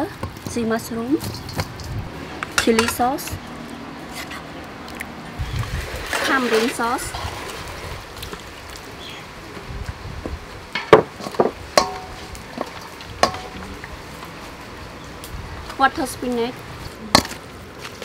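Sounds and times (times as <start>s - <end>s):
pot and spoon knocking metal bowls: 1.2s - 3.4s, 10.8s - 13.7s.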